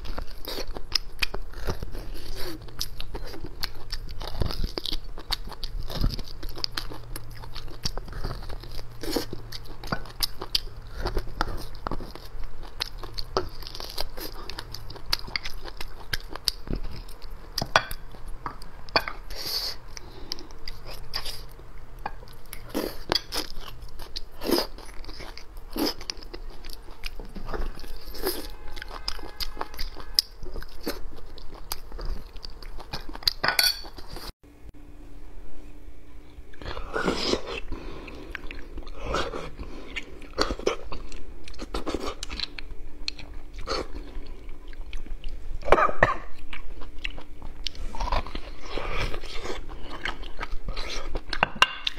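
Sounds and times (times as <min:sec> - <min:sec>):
chewing with wet clicks: 0:00.0 - 0:34.2, 0:38.0 - 0:39.0, 0:39.6 - 0:51.9.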